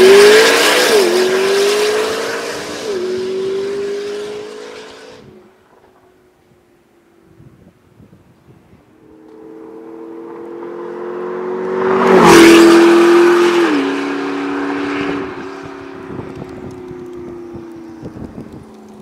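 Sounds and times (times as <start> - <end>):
sports car driving past: 9.0 - 18.1.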